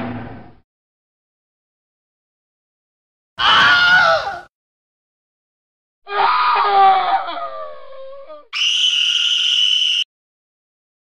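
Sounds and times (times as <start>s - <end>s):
cartoon monster screams: 3.4s - 4.5s, 6.1s - 10.0s.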